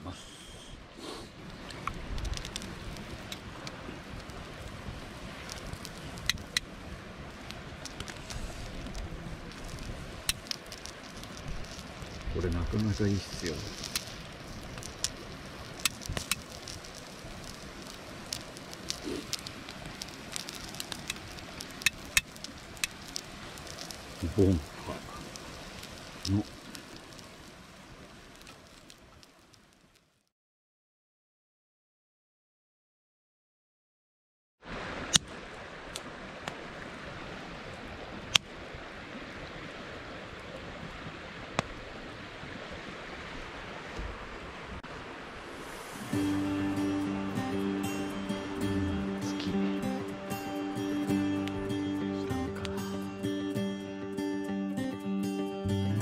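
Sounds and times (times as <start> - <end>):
campfire crackling and popping: 0.8 - 30.3, 34.8 - 44.0, 44.8 - 56.0
meat sizzling on griddle: 12.8 - 29.9, 45.5 - 50.5.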